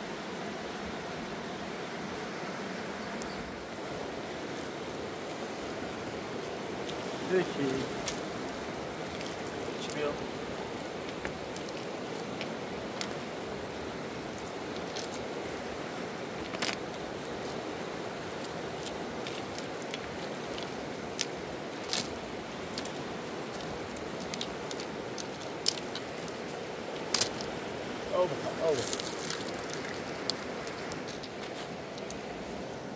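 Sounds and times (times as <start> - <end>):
river rushing: 0.0 - 32.9
stones clicking on gravel: 11.0 - 13.3, 14.3 - 15.3, 16.4 - 17.6, 18.3 - 27.6, 28.6 - 32.2.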